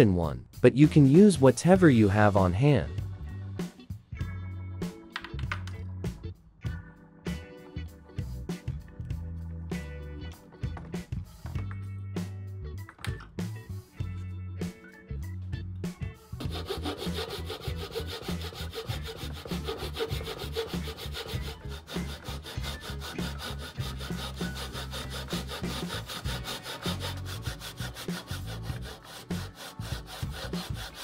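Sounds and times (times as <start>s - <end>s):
hand saw cutting wood: 16.4s - 31.0s.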